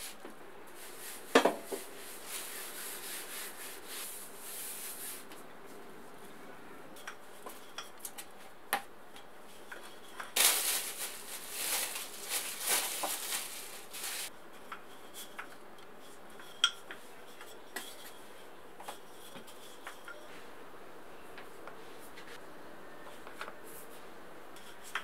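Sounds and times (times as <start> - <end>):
cling film crinkling: 10.4 - 14.3.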